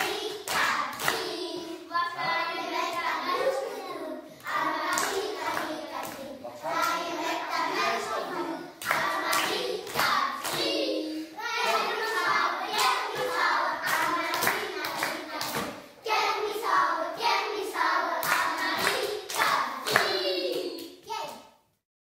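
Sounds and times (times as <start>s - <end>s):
hand claps: 0.0s - 1.3s, 4.4s - 6.2s, 8.8s - 10.7s, 11.6s - 15.8s, 18.2s - 20.9s
children singing together: 0.0s - 21.0s.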